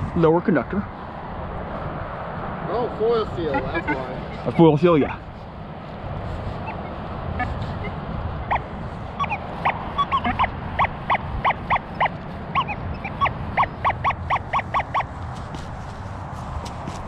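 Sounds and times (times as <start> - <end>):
metal detector beeping: 3.5 - 5.2, 6.6 - 15.1.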